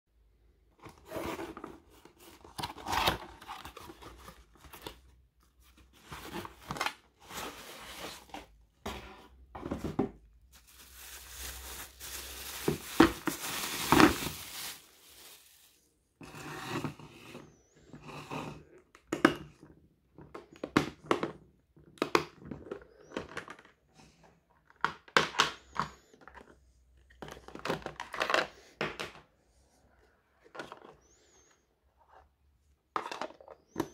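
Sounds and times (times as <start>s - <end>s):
cardboard packaging opened: 0.8s - 5.1s, 5.8s - 8.5s, 10.5s - 15.8s
plastic wrapping crinkling: 10.5s - 15.8s.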